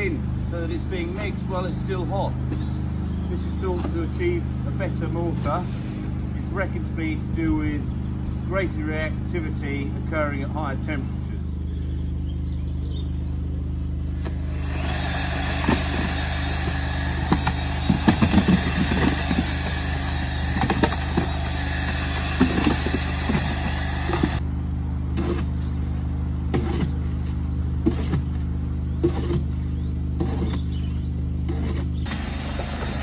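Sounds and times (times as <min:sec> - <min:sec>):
electric mixer churning mortar: 0:14.2 - 0:24.4, 0:31.5 - 0:33.0
paddles knocking and scraping: 0:14.2 - 0:24.4, 0:26.5 - 0:33.0
shovel scraping through mortar: 0:14.2 - 0:24.4, 0:25.1 - 0:25.7, 0:26.5 - 0:33.0.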